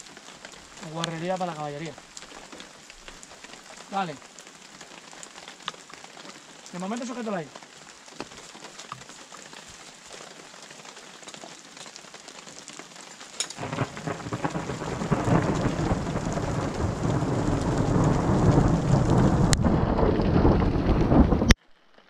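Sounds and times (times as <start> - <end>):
steady rain: 0.0 - 22.0
deep rolling thunder: 13.6 - 21.6.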